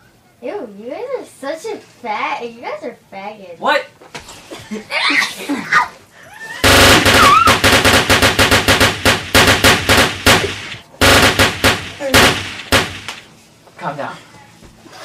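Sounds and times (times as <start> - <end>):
automatic gunfire: 6.6 - 13.3.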